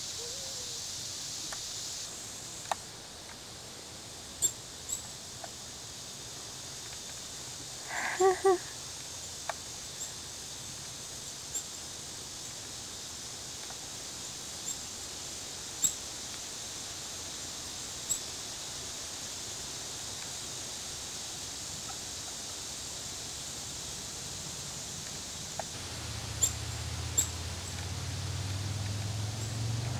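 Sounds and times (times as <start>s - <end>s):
steady high hiss of woods: 0.0s - 29.9s
songbird chip notes: 25.8s - 29.8s.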